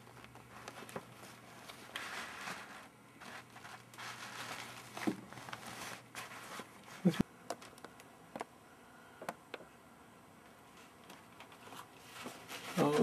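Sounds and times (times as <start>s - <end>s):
paper rustling and crinkling: 0.0s - 7.8s, 10.7s - 13.0s.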